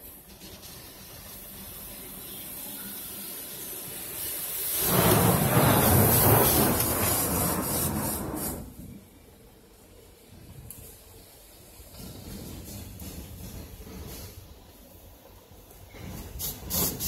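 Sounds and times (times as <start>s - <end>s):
water rushing on car roof: 4.4s - 8.7s.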